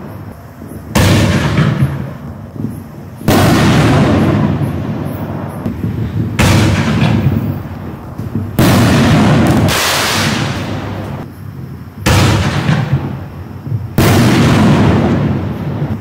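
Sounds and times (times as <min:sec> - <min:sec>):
firework shell bursting: 0:00.0 - 0:11.4.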